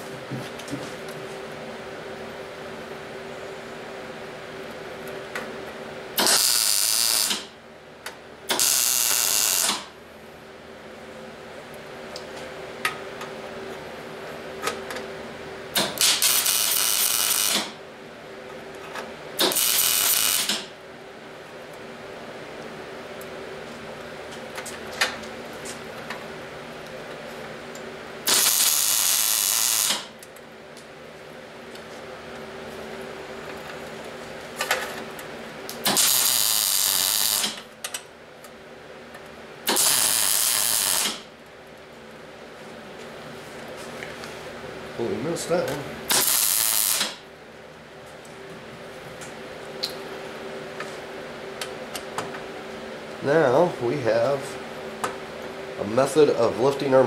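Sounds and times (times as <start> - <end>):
steady hum: 0.0 - 57.0
welding arc sizzling crackle: 6.2 - 7.6, 8.5 - 10.0, 15.7 - 17.8, 19.4 - 20.7, 26.9 - 30.9, 32.7 - 38.5, 39.6 - 41.9, 45.2 - 47.3.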